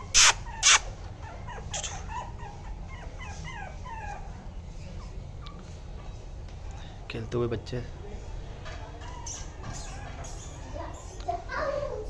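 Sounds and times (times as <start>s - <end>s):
puppies whimpering and yipping: 0.0s - 5.8s, 9.0s - 11.2s.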